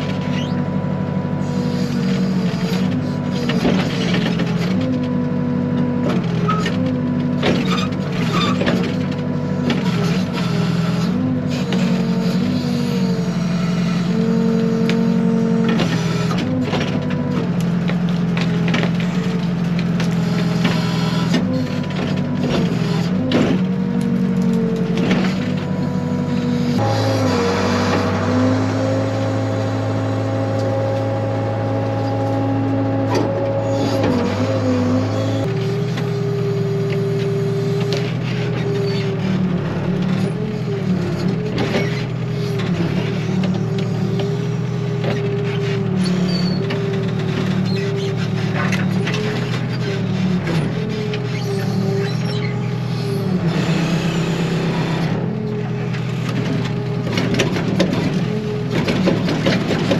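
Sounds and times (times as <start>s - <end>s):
diesel engine straining: 0.0s - 59.9s
branches cracking and scraping: 15.8s - 38.9s.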